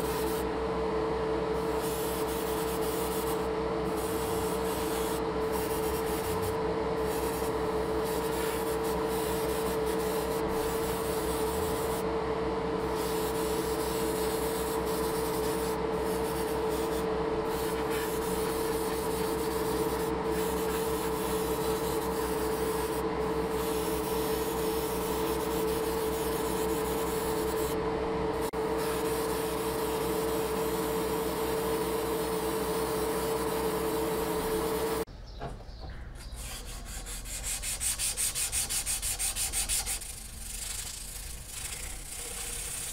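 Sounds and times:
small motor humming: 0.0s - 35.1s, 36.3s - 42.9s
airbrush hiss: 36.4s - 42.9s.

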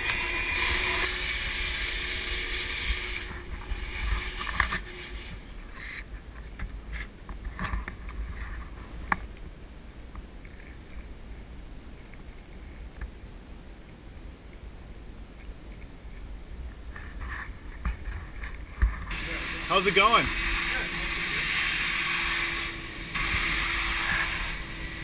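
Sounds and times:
air movers hissing: 19.1s - 25.0s.

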